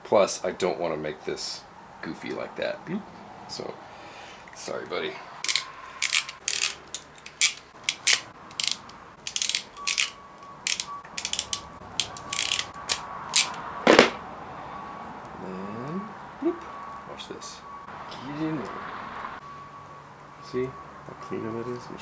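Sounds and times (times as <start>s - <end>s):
plastic wiring connectors clicking: 5.4s - 13.6s.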